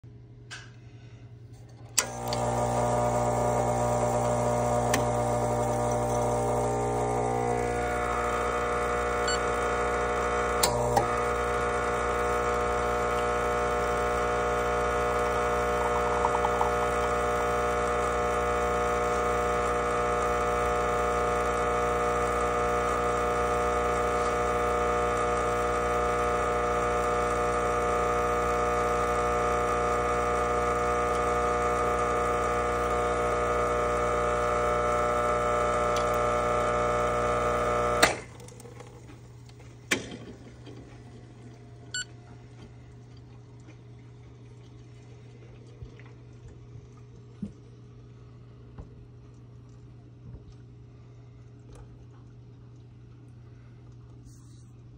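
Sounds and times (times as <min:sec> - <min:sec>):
espresso machine pump humming: 0:01.7 - 0:47.6.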